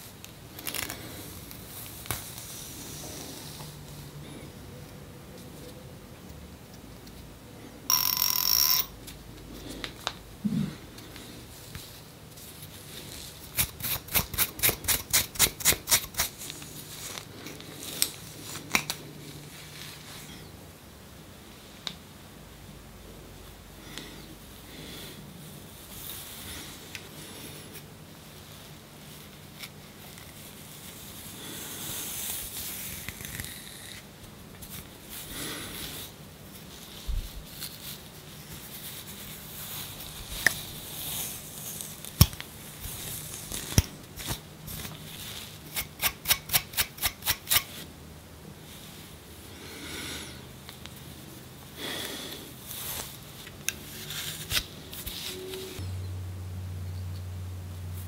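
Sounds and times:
scratching scalp skin: 13.1s - 17.2s.

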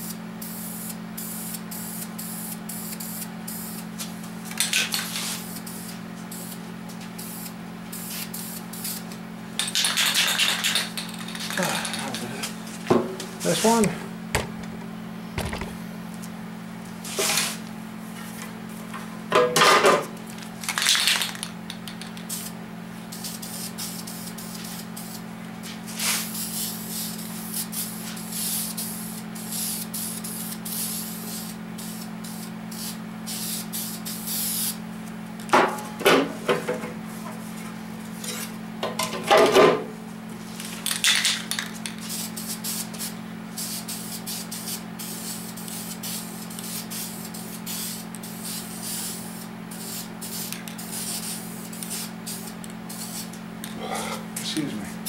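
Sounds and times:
spray paint can hissing: 0.0s - 3.8s, 4.6s - 12.1s, 20.6s - 25.2s, 25.9s - 34.8s, 40.6s - 53.4s
steady low hum: 0.0s - 55.0s
spray can metallic rattles: 9.6s - 12.2s, 20.6s - 22.5s, 40.7s - 42.2s.

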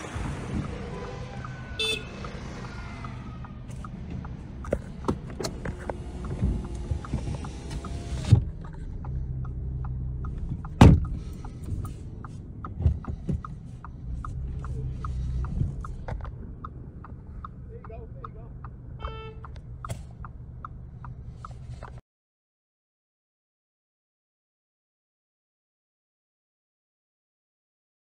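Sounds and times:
car engine humming: 0.0s - 22.0s
regular ticking: 0.0s - 22.0s.

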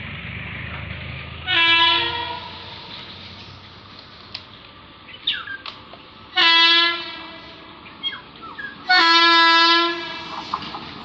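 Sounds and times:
locomotive horn blasts: 1.4s - 2.9s, 6.4s - 7.7s, 8.9s - 10.5s
birds chirping: 5.0s - 6.2s, 7.8s - 8.9s.

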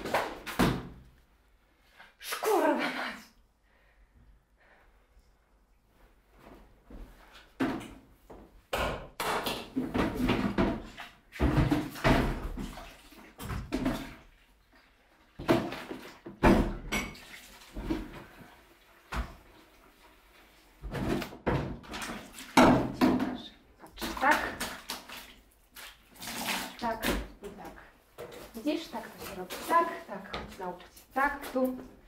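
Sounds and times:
plastic bucket and mop clattering: 0.0s - 1.0s, 7.2s - 8.4s, 9.2s - 14.4s, 15.3s - 20.1s, 20.7s - 32.0s.

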